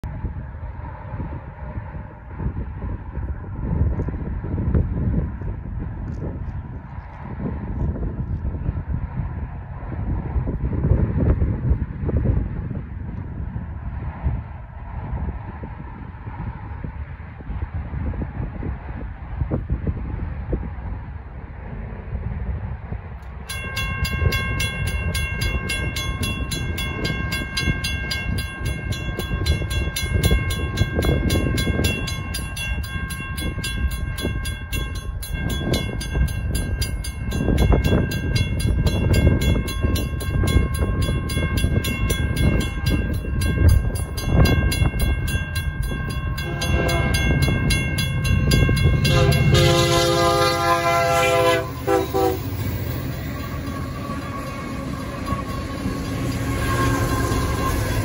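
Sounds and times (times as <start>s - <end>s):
railroad crossing bells ringing: 23.2s - 58.0s
locomotive multi-note horn: 46.4s - 47.4s, 49.0s - 58.0s.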